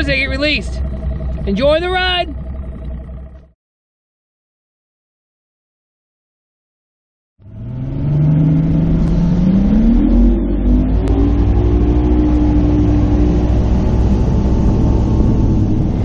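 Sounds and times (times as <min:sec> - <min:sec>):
outboard motor accelerating: 0:00.0 - 0:03.6, 0:07.4 - 0:16.0.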